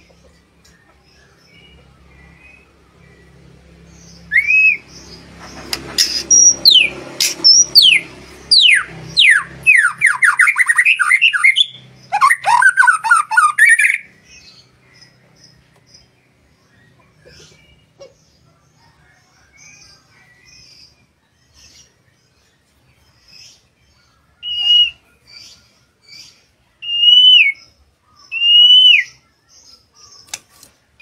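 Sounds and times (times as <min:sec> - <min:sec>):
bird singing whistles and trills: 0:04.2 - 0:04.8, 0:24.4 - 0:25.1, 0:26.8 - 0:29.3.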